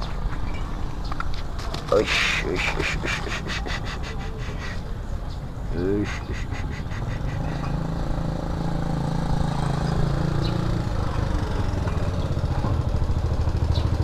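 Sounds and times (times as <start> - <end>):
motorcycle engine running: 7.1 - 14.0.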